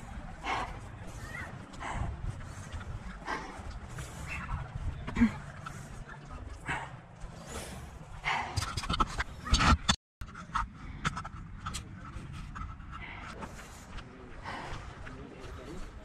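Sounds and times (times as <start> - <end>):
person panting: 0.0 - 8.9, 12.3 - 16.0
low wind rumble: 0.0 - 16.0.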